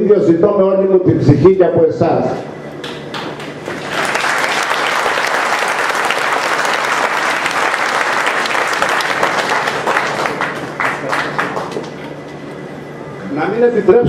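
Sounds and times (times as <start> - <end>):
audience applauding: 2.8 - 12.1.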